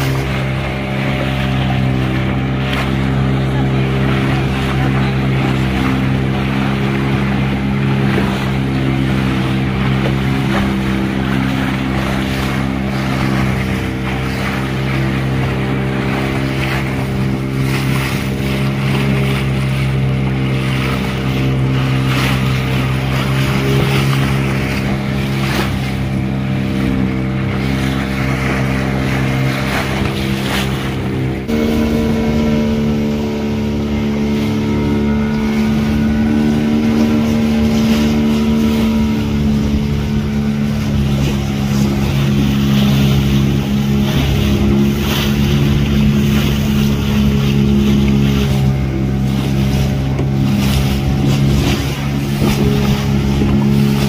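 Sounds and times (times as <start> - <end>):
motorboat engine running: 0.0 - 54.0.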